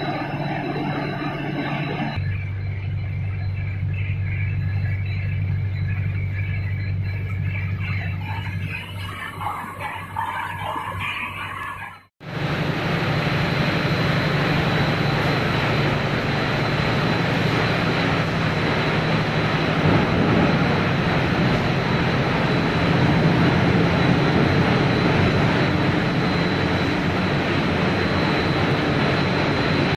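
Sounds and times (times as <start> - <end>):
machinery hum with high whine: 0.0 - 29.9
quieter machine with wavering whine: 0.0 - 29.9.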